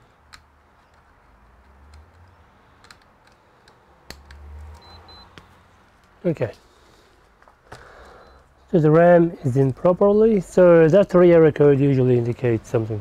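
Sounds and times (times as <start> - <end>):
short high beeps: 4.8 - 5.3.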